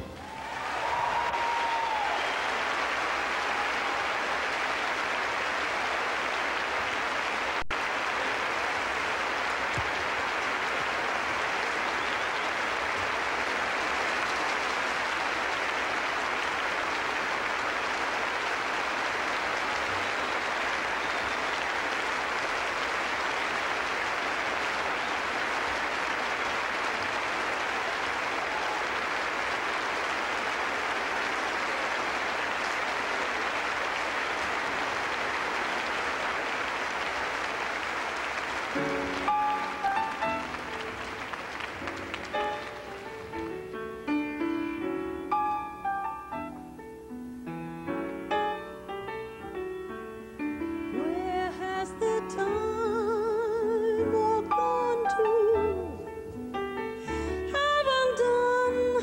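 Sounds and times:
audience applauding: 0:00.0 - 0:44.4.

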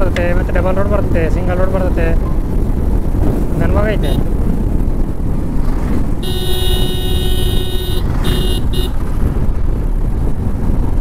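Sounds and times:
wind and road noise: 0:00.0 - 0:11.0
vehicle horn honking: 0:06.2 - 0:09.0.

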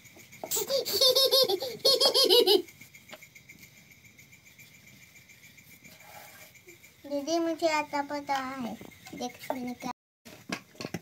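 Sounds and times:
children laughing: 0:00.4 - 0:02.9.

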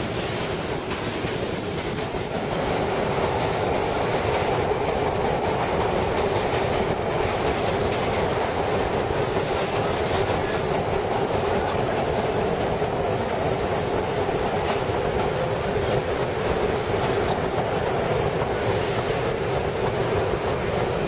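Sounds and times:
subway car wheels rumbling and rattling: 0:00.0 - 0:21.0.

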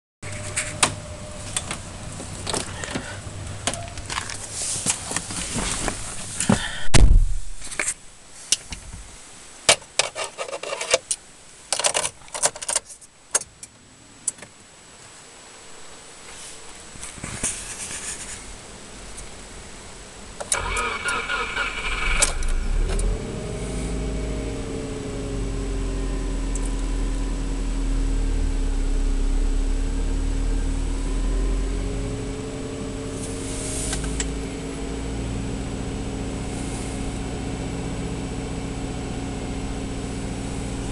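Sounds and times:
starter cranking: 0:20.5 - 0:23.2
car engine fast idle: 0:20.5 - 0:31.8.

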